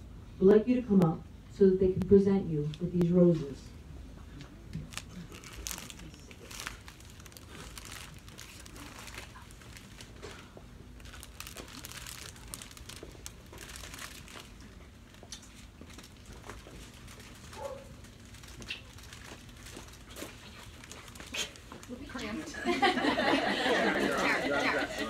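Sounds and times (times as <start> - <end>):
low steady hum: 0.0 - 25.0
plastic sleeves crinkling: 4.7 - 22.5.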